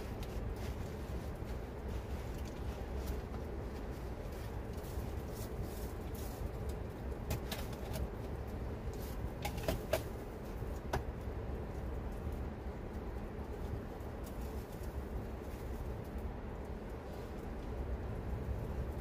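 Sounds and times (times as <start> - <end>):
campfire crackling: 0.0 - 19.0
steady low hum: 0.0 - 19.0.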